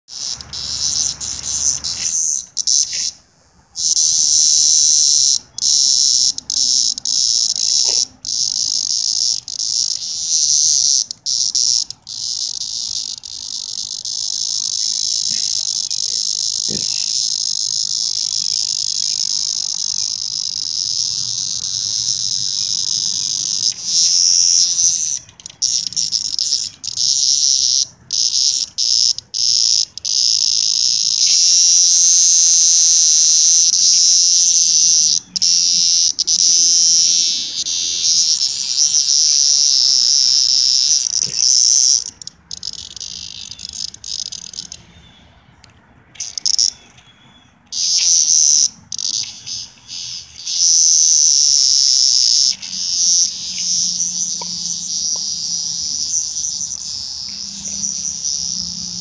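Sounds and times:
cicada buzzing: 0.1 - 59.0.

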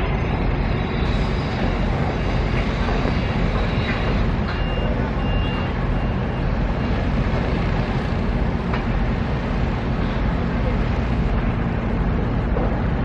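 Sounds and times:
heavy machinery rumble: 0.0 - 13.0
reversing alarm beeps: 2.2 - 6.6.

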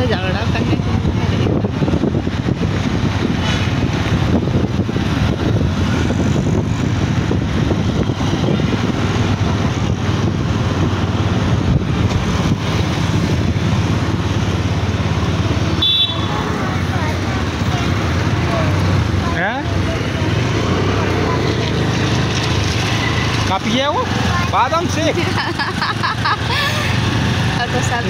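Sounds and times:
wind buffeting microphone: 0.0 - 15.6
road vehicle rumble: 0.0 - 28.0.

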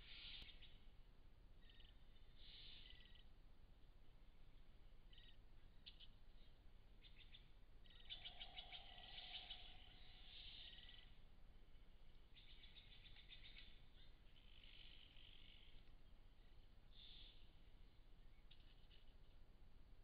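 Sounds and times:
harsh hissy bird calls: 0.0 - 0.7, 2.4 - 3.2, 7.9 - 11.2, 16.9 - 17.4.

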